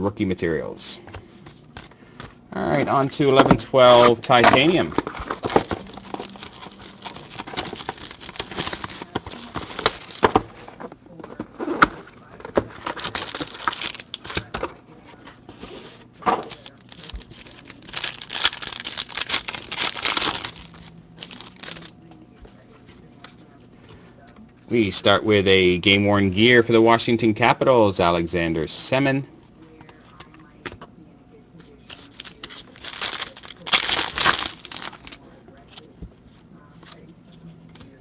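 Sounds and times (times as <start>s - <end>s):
foil pack crinkling: 3.8s - 14.6s, 15.7s - 22.0s, 31.9s - 35.8s.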